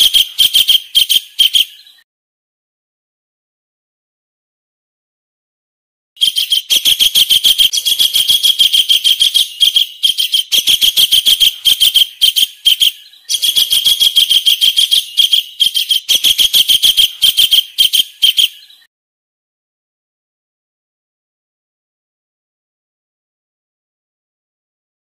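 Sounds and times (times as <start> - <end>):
kingfisher calling shrill notes: 0.0 - 2.0, 6.2 - 18.9.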